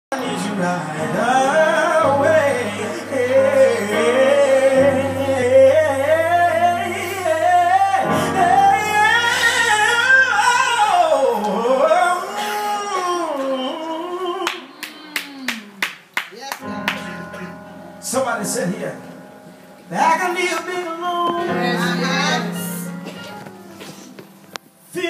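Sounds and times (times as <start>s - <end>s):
person singing gospel: 0.1s - 15.8s, 19.9s - 24.0s, 24.8s - 25.0s.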